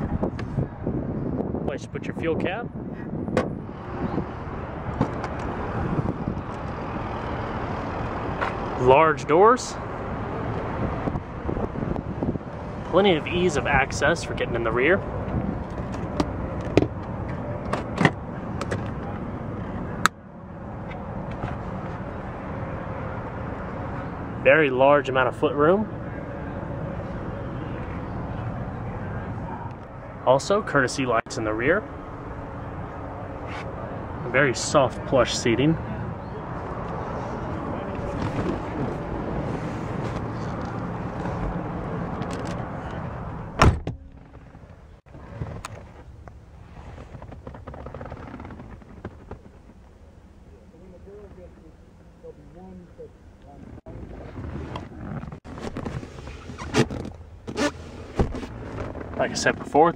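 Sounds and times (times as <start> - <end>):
outdoor background noise: 0.0 - 59.9
car door slamming: 43.5 - 44.7
rustling movement: 53.6 - 59.2.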